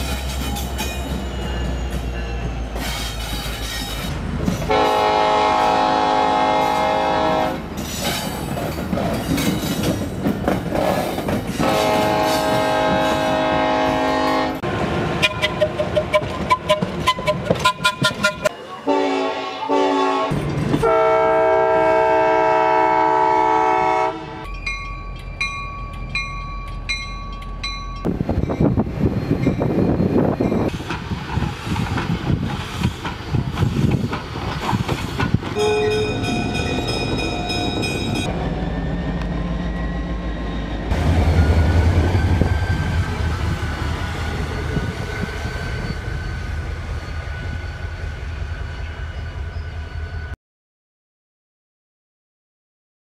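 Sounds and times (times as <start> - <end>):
passing train rumble: 0.0 - 50.4
locomotive air horn: 4.7 - 7.6, 11.6 - 24.5, 35.6 - 36.4
steam whistle blast: 4.7 - 7.6, 18.9 - 24.4
ringing high tones: 35.6 - 38.3.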